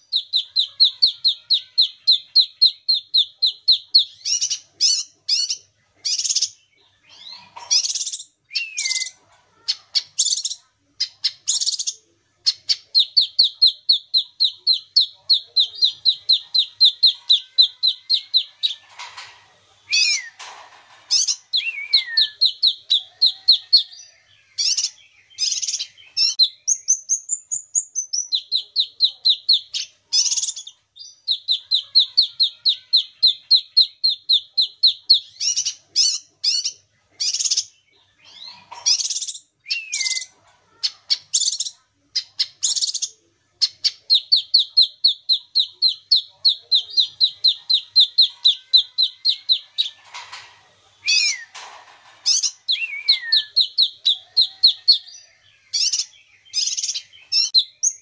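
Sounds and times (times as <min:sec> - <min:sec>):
songbird trilling and calling: 0:00.0 - 0:09.2, 0:21.1 - 0:50.3, 0:52.2 - 0:58.0.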